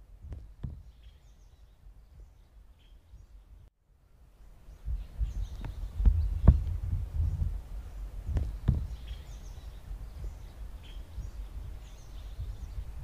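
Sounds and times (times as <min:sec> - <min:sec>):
sharp knocks: 0:00.2 - 0:01.1, 0:08.3 - 0:09.2
faint bird chirps: 0:00.5 - 0:13.0
low rumble: 0:04.8 - 0:13.0.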